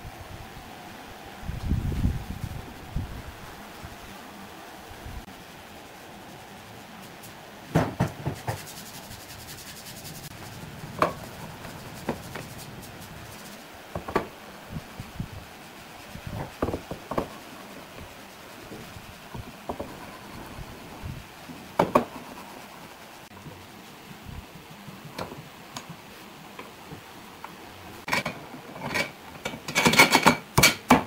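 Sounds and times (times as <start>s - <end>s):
wood scraping rub: 8.1s - 14.3s
wooden knocks and clatter: 16.4s - 17.4s, 21.8s - 22.2s.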